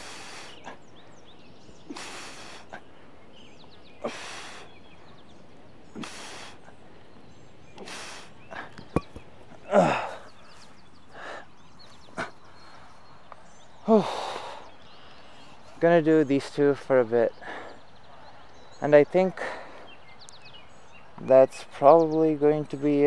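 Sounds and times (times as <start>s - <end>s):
man breathing out hard: 0.0s - 0.9s, 1.7s - 3.1s, 4.0s - 4.8s, 5.9s - 6.7s, 7.8s - 8.8s, 9.7s - 10.4s, 11.1s - 11.6s, 13.8s - 15.5s
man groaning sigh: 9.7s - 10.3s, 13.8s - 14.5s.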